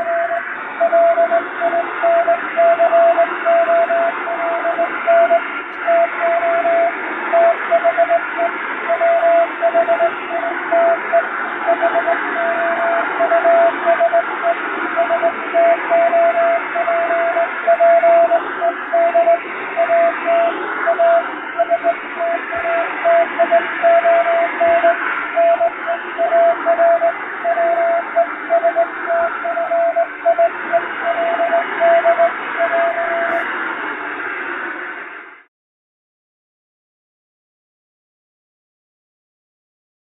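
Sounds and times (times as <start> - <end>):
morse code beeps: 0.0 - 33.5
shortwave radio static: 0.0 - 35.5.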